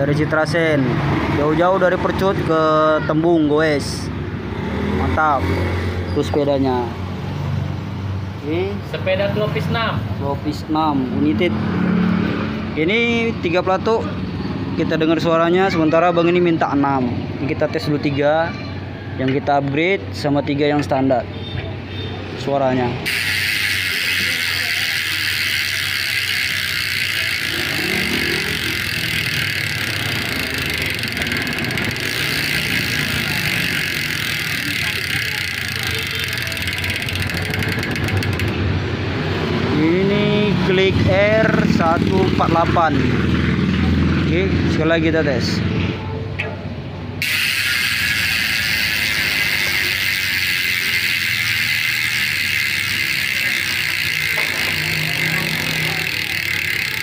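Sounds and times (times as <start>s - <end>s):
bike hub freewheel buzzing: 0.0s - 6.3s, 21.3s - 44.1s, 47.1s - 57.0s.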